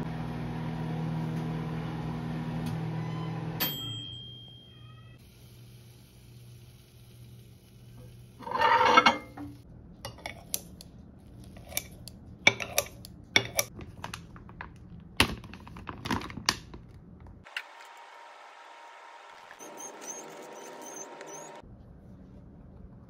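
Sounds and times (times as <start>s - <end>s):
plate scraping on glass turntable: 8.4s - 9.5s.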